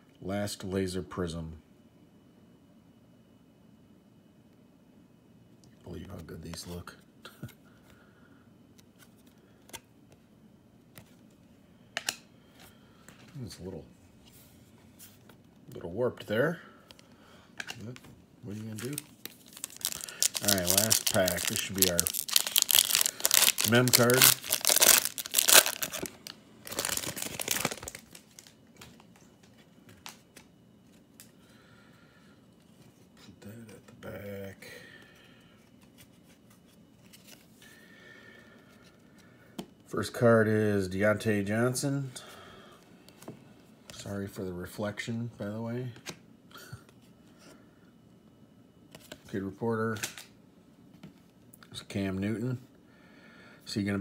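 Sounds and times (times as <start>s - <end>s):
plastic wrapper crinkling: 18.6s - 29.2s.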